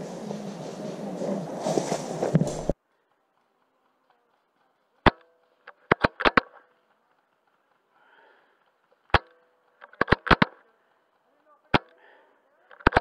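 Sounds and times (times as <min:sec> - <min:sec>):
airsoft rifle shot: 0:05.0 - 0:06.6, 0:09.1 - 0:10.6.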